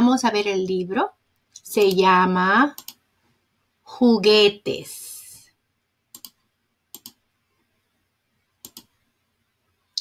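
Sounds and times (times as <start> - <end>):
computer mouse clicks: 1.5 - 2.0, 2.8 - 3.0, 6.1 - 7.2, 8.6 - 9.0.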